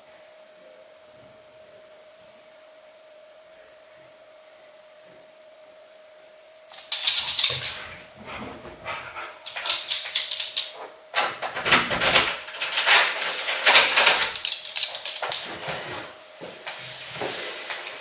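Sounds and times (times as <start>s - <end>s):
keys jingling: 6.7s - 7.8s, 9.4s - 10.8s, 11.4s - 15.6s
key turning in door lock: 9.5s - 15.5s.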